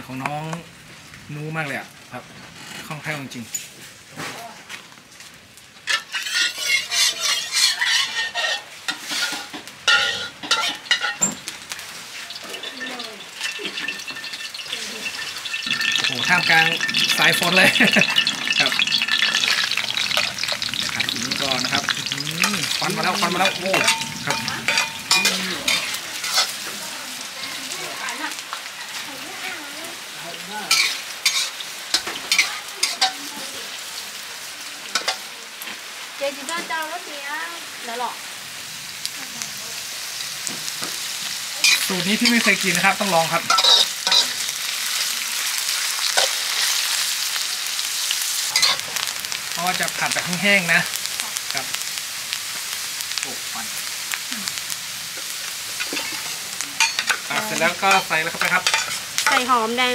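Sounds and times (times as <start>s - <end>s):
food sizzling in oil: 0.0s - 59.9s
spatula scraping a pan: 5.9s - 11.4s, 12.0s - 27.8s, 30.7s - 33.2s, 41.6s - 45.0s, 48.5s - 49.1s, 55.7s - 59.7s.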